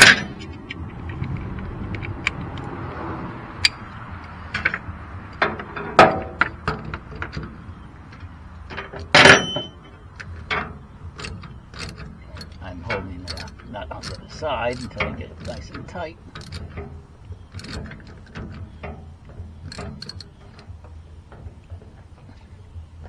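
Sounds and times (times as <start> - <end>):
metal clank: 0.0 - 2.5, 3.6 - 22.8
steel tools clinking: 3.6 - 21.4.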